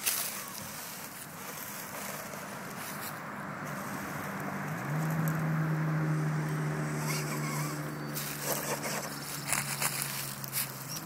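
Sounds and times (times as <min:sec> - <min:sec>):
rc car motor whining: 0:07.0 - 0:10.0.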